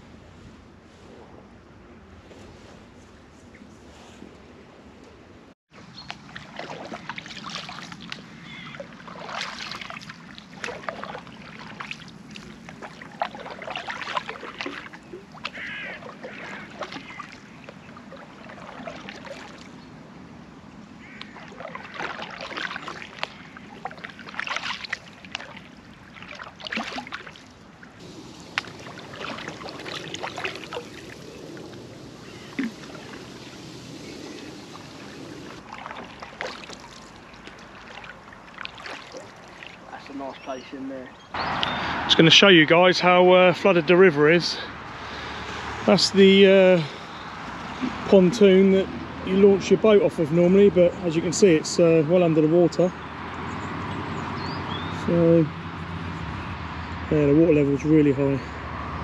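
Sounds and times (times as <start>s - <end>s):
paddle strokes in water: 5.7s - 20.0s, 21.0s - 40.5s.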